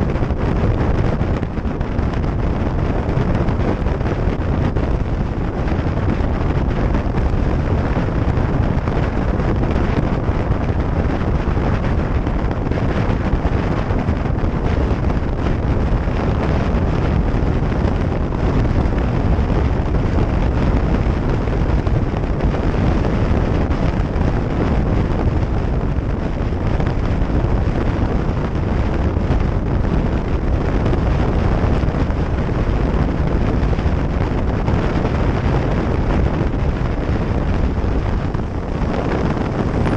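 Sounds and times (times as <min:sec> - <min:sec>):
wind buffeting microphone: 0:00.0 - 0:39.9
road noise: 0:36.2 - 0:39.9.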